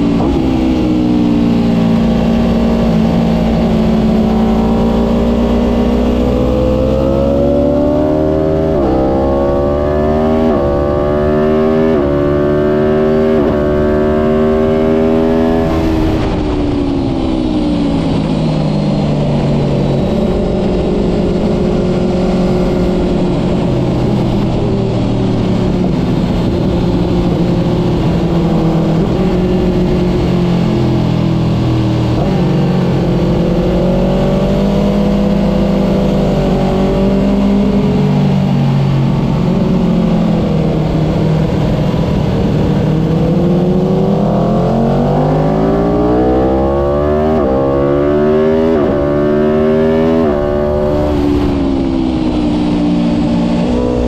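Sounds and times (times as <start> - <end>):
motorcycle engine accelerating: 0.0 - 54.0
wind rush: 14.2 - 45.0, 48.3 - 54.0.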